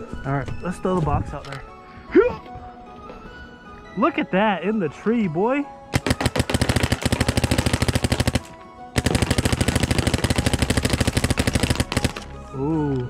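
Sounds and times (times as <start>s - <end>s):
paintball marker firing: 5.9s - 12.4s.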